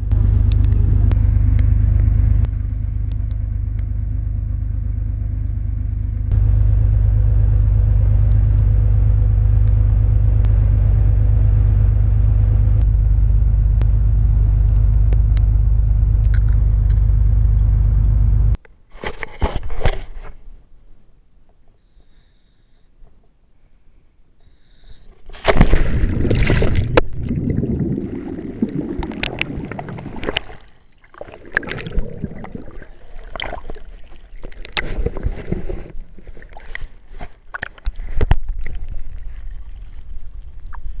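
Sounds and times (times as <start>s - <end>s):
low muffled rumble: 0.0s - 18.6s, 25.4s - 37.3s
regulator inhalation hissing whistle: 21.8s - 22.9s
loud splash into water: 25.4s - 34.3s
underwater air bubbles rushing: 25.5s - 41.0s.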